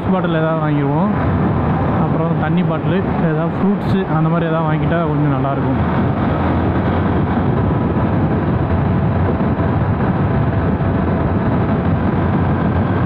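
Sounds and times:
wind and road noise: 0.0 - 13.0
motorcycle engine running: 5.2 - 13.0.

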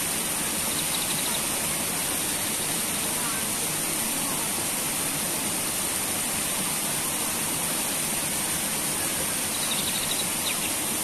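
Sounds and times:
water rushing around rocks: 0.0 - 11.0.

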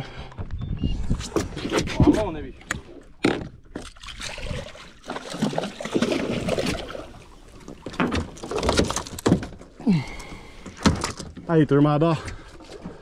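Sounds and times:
water splashing against boat hull: 1.3 - 9.8.

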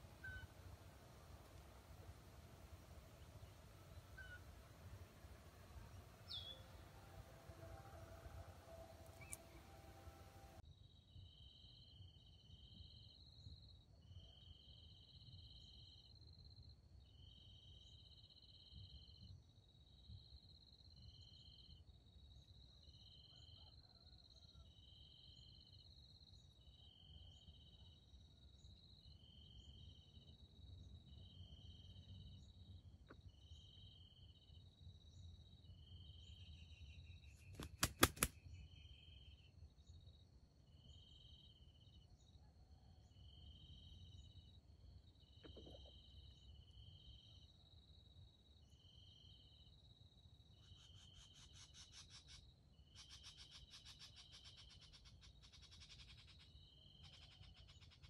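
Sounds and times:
insects chirping: 0.0 - 10.6, 43.2 - 58.0
sharp clicks: 37.6 - 38.3.

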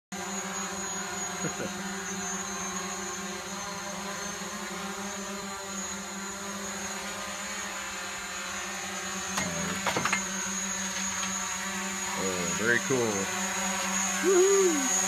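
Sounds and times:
drone propellers buzzing: 0.2 - 15.0.

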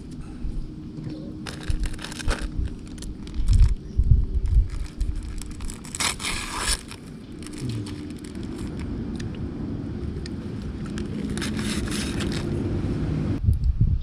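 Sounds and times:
steady low rumble: 0.0 - 14.0
plastic wrapper crinkling: 1.4 - 9.3, 10.2 - 12.6.

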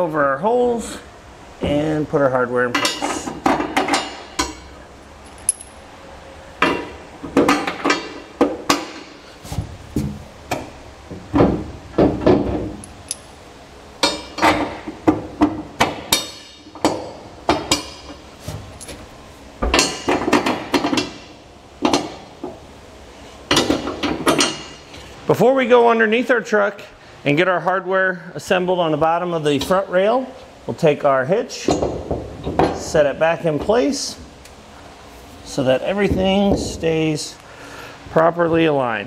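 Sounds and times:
metal bolts clinking on steel: 5.3 - 5.8, 12.8 - 13.3.

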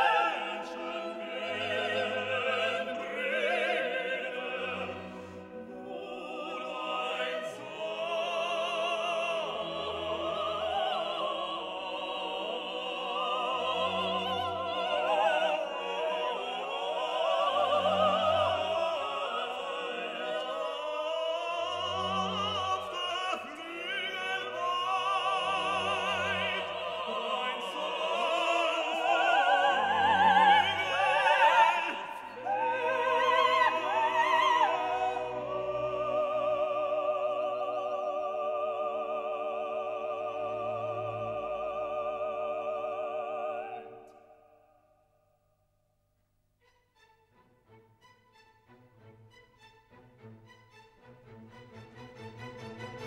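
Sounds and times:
operatic voice singing with vibrato: 0.0 - 44.6
orchestra playing: 46.6 - 53.0.

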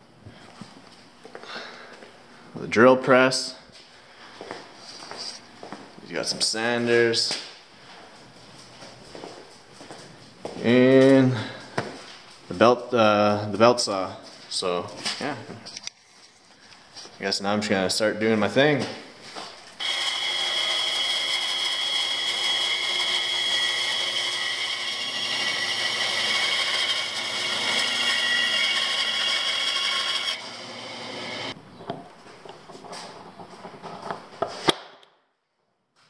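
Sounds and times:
band saw cutting plywood: 19.8 - 31.6.

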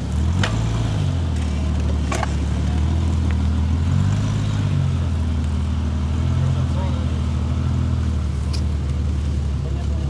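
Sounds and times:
suv engine running at low revs: 0.0 - 10.0.

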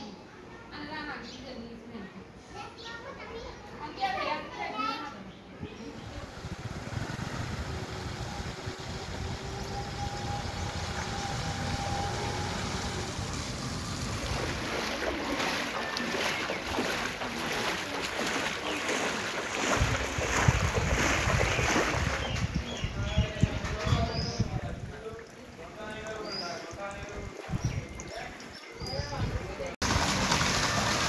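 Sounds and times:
water splashing from wading: 5.9 - 22.9, 29.8 - 31.0
wind rumbling on microphone: 5.9 - 25.3, 26.8 - 30.1.

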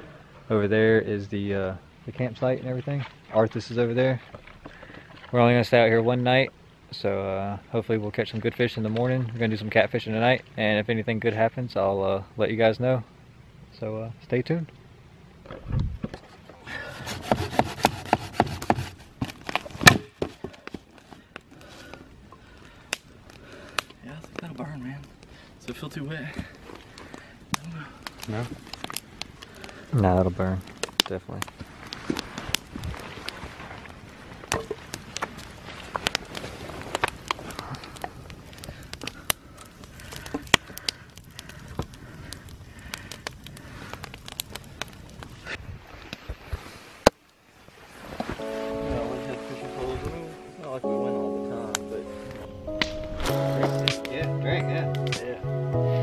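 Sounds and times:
wood cracking: 15.5 - 25.4, 26.2 - 45.5, 52.7 - 55.3.

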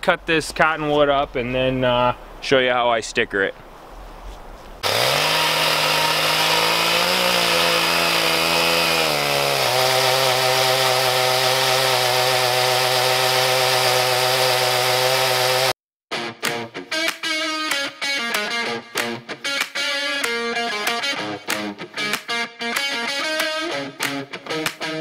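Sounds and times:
chainsaw cutting log: 4.8 - 15.8, 19.6 - 24.8.

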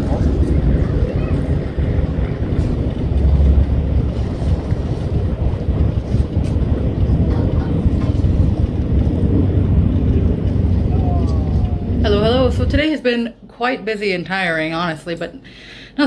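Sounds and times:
wind buffeting microphone: 0.0 - 13.3.

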